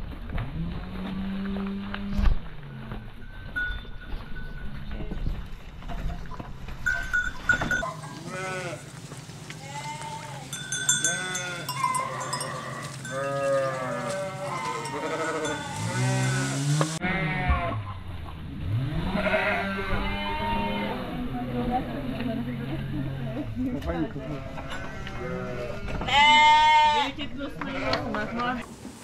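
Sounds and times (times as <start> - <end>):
sheep bleating: 8.0 - 8.9, 9.6 - 17.9, 19.1 - 21.2, 24.0 - 28.6.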